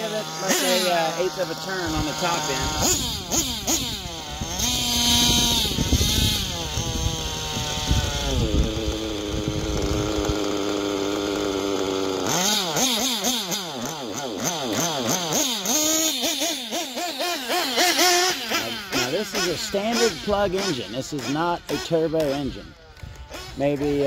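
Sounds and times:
nitro engine revving: 0.0 - 24.0.

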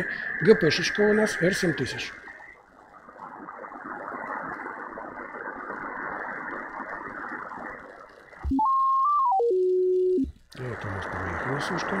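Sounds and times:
shortwave receiver hiss: 0.0 - 12.0
whistle tone rising in pitch: 8.5 - 10.3.

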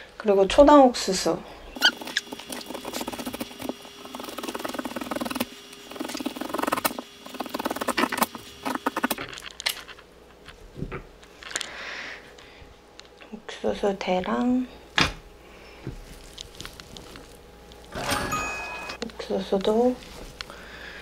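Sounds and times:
knife crunching through corn: 1.8 - 9.9, 15.9 - 17.9.

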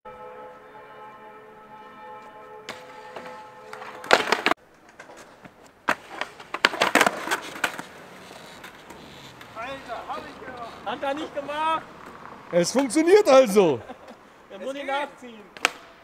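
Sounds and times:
skateboard deck and wheel clacks: 2.7 - 13.0
skateboards clattering: 2.7 - 16.0.

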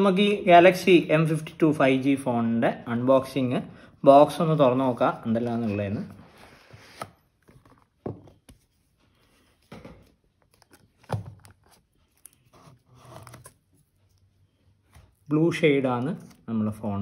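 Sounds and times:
cardboard box rustling: 10.6 - 13.9.

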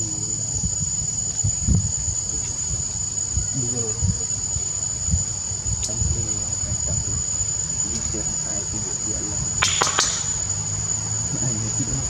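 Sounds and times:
insects droning high-pitched: 0.0 - 12.0
sharp clicks: 9.6 - 10.5.

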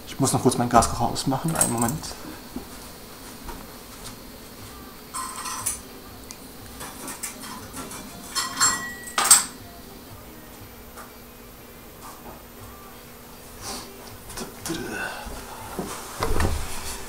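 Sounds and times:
metal pots clattering: 5.1 - 5.8, 6.8 - 9.6.

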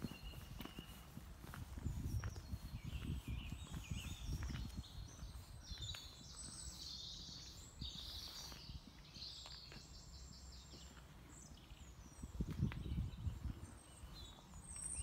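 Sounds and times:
footsteps: 0.0 - 9.9
songbirds chirping and trilling: 0.0 - 15.0.

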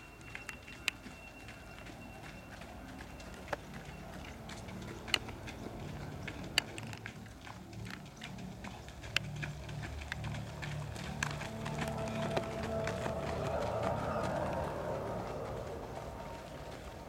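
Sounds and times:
runners' footsteps on dirt path: 0.0 - 17.0.

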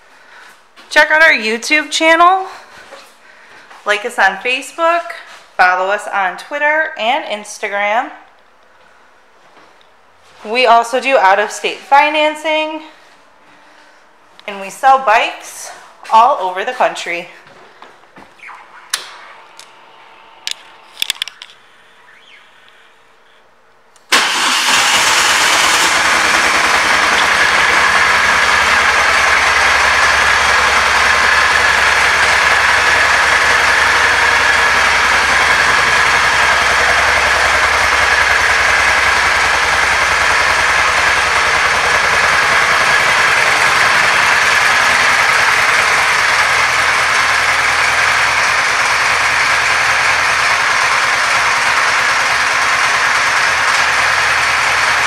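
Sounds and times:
clicks: 18.4 - 19.8, 20.4 - 21.6
motorcycle engine idling: 25.0 - 55.0.

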